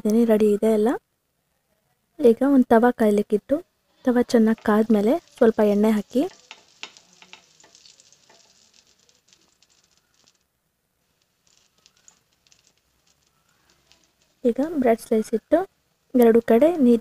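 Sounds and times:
oil sizzling and popping: 0:03.2 - 0:17.0.

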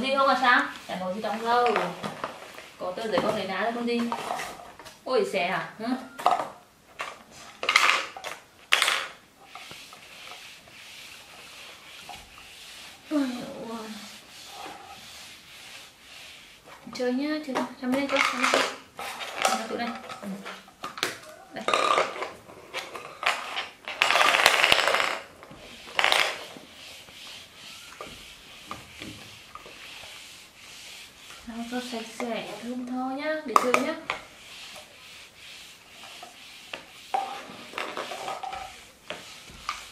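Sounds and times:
plastic clattering and crinkling: 0:06.2 - 0:10.0, 0:16.8 - 0:26.7, 0:36.2 - 0:39.9
soft rubbing: 0:09.4 - 0:17.5, 0:24.8 - 0:39.9.

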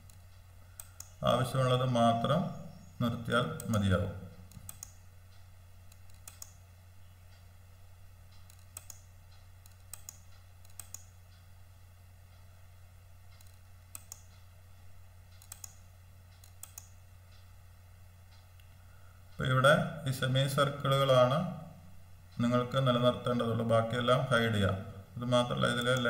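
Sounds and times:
faint computer mouse clicks: 0:00.0 - 0:01.2, 0:04.5 - 0:06.6, 0:08.3 - 0:11.4, 0:13.3 - 0:14.5, 0:15.3 - 0:17.5
steady low hum: 0:00.0 - 0:26.0.

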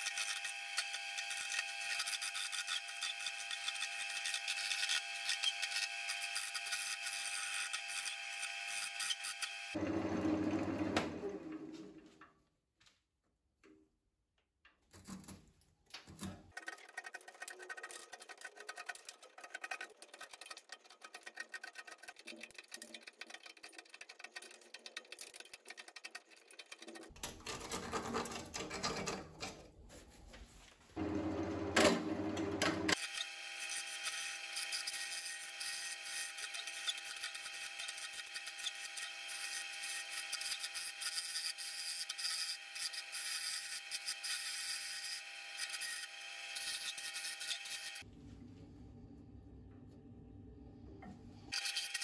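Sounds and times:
turning tool cutting wood: 0:00.0 - 0:11.5, 0:16.5 - 0:28.2, 0:31.0 - 0:48.1, 0:51.5 - 0:52.0
lathe motor hum: 0:31.0 - 0:33.5.

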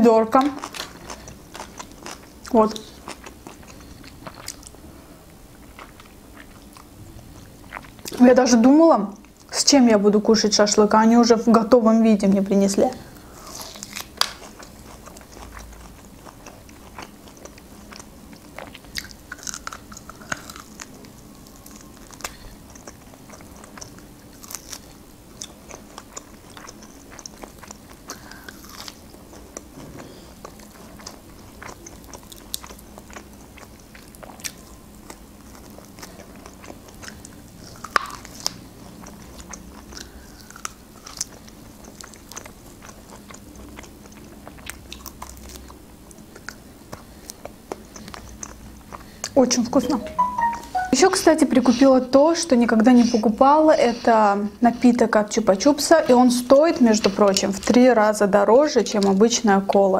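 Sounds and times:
person biting and chewing meat: 0:00.6 - 0:04.8, 0:13.4 - 0:49.4.

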